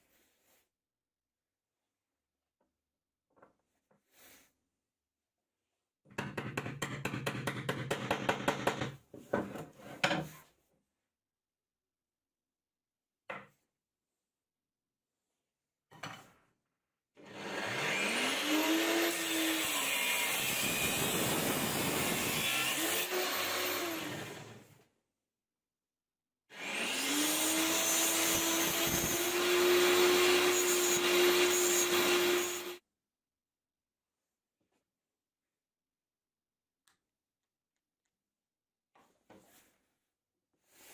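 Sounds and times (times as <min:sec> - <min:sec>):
angle grinder whining: 0:26.5 - 0:32.8.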